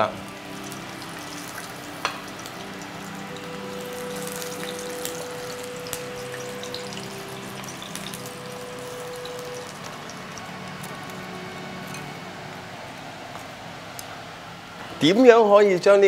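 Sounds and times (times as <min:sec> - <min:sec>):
soft background music: 0:00.0 - 0:16.0.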